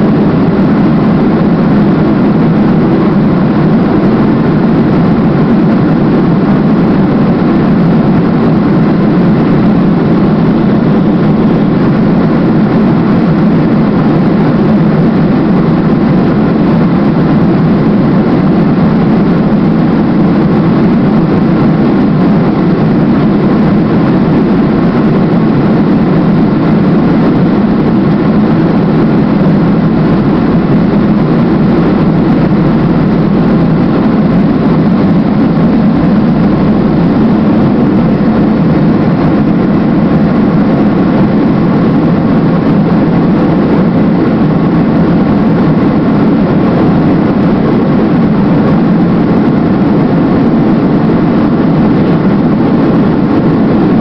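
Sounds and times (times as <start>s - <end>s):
jet engine cabin roar: 0.0s - 54.0s.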